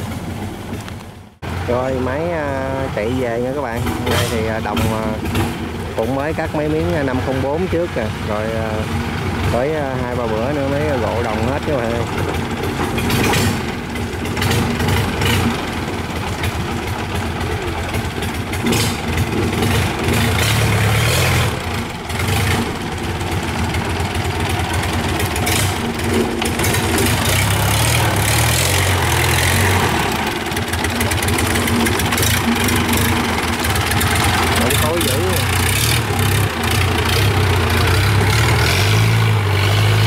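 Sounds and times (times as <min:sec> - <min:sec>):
barge engine running: 0:00.0 - 0:40.0.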